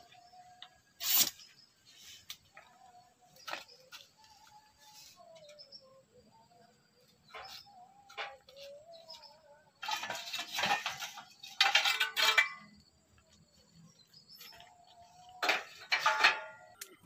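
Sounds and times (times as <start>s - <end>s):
steel pipes clanking and scraping: 7.2s - 9.1s, 9.7s - 13.2s, 14.2s - 17.0s.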